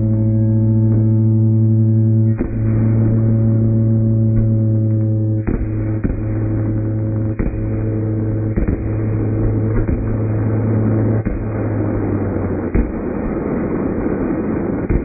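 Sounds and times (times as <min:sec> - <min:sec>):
low droning tone: 0:00.0 - 0:15.0
fireworks bangs: 0:05.4 - 0:15.0.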